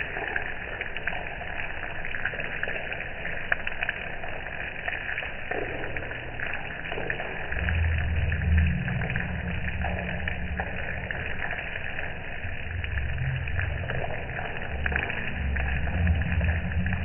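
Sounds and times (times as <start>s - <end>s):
wind rumbling on microphone: 5.6s - 17.0s.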